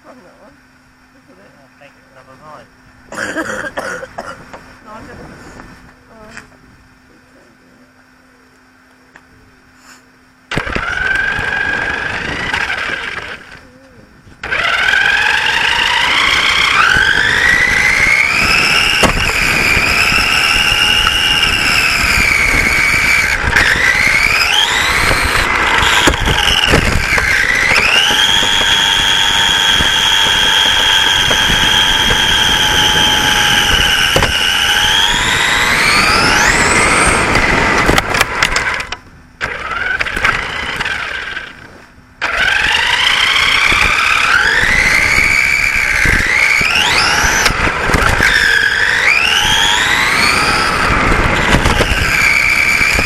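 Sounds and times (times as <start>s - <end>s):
road rumble: 0.0s - 53.0s
toy car motor whining: 10.5s - 13.6s, 14.4s - 41.6s, 42.2s - 53.0s.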